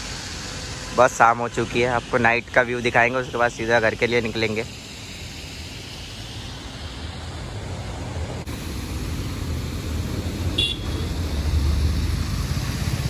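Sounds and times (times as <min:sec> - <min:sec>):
passing cars and motorbikes: 0:06.0 - 0:13.0.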